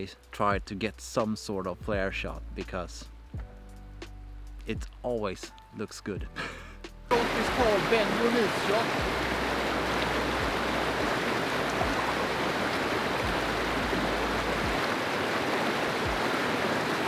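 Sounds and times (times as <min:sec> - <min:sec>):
stream rushing over rocks: 0:07.1 - 0:17.0
soft low thumps: 0:09.0 - 0:14.9.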